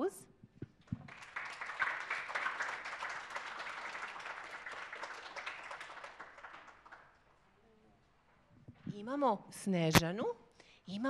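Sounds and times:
audience applauding: 0:00.8 - 0:07.3.

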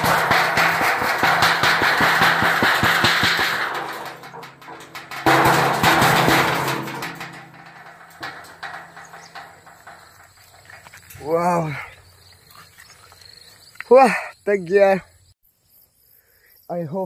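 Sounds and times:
tin sheet rattling and banging: 0:00.0 - 0:11.9.

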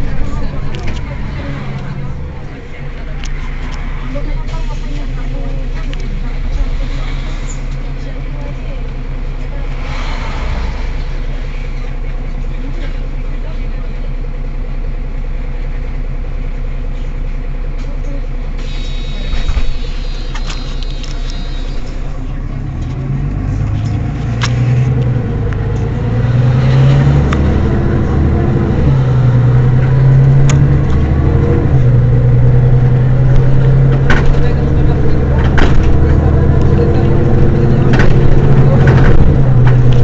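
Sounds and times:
bus diesel engine: 0:00.0 - 0:40.0.

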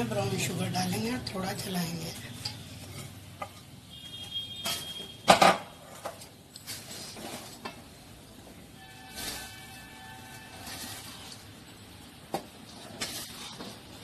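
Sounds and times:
spoon scraping a pan: 0:08.8 - 0:11.7.

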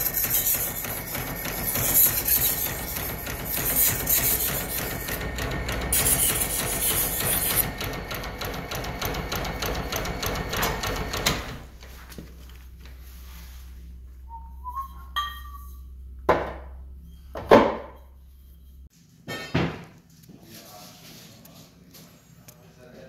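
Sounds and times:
electric motor humming: 0:00.0 - 0:11.8.

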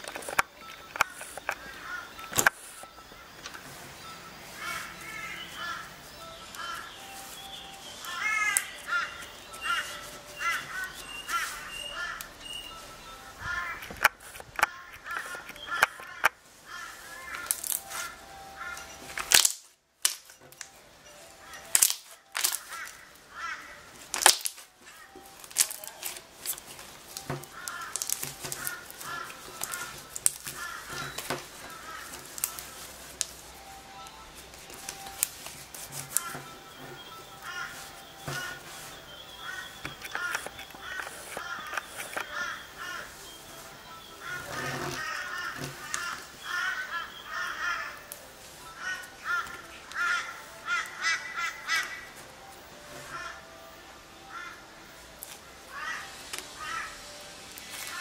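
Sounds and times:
birds calling: 0:00.0 - 0:58.0
slime popping and clicking: 0:19.2 - 0:20.3, 0:24.1 - 0:24.6.

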